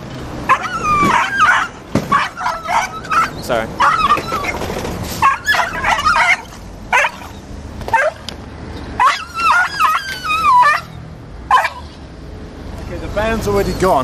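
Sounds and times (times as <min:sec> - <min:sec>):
dog yelping and crying: 0:00.4 - 0:08.3, 0:08.9 - 0:12.0.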